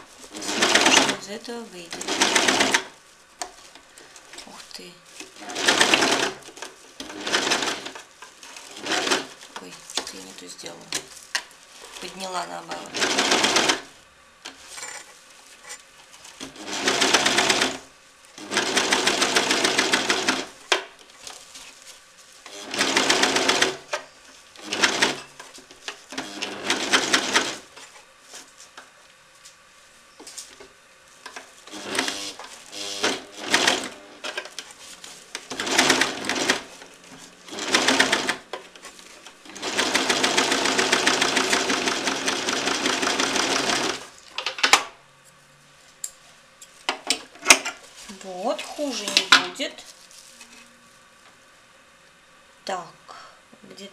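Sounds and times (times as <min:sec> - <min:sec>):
sewing machine stitching: 0:00.0 - 0:03.0, 0:05.2 - 0:09.4, 0:12.0 - 0:13.9, 0:16.4 - 0:20.8, 0:22.5 - 0:24.0, 0:24.6 - 0:25.3, 0:26.1 - 0:27.7, 0:31.7 - 0:34.6, 0:35.4 - 0:38.5, 0:39.4 - 0:44.1.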